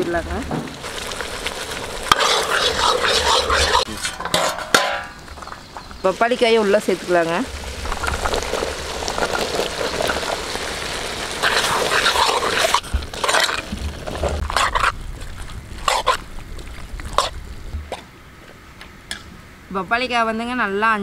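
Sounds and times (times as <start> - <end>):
masala sizzling in a pan: 0.0 - 17.9
metal spoon scraping a pan: 2.1 - 5.0, 11.4 - 13.7, 14.3 - 15.0.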